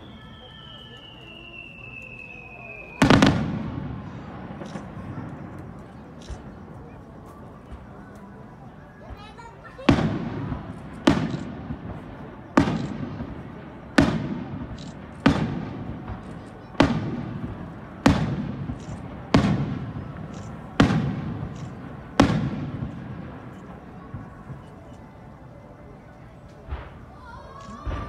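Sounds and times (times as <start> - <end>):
firework shells bursting: 10.4 - 12.0, 12.6 - 13.4, 14.0 - 23.8.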